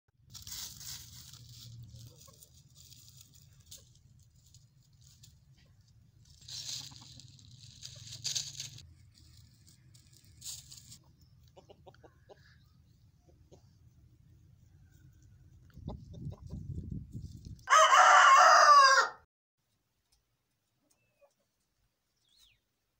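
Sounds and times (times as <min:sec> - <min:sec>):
rustling noise: 0:00.2 - 0:11.0
chickens clucking: 0:01.8 - 0:08.6, 0:10.9 - 0:16.9, 0:20.8 - 0:21.7.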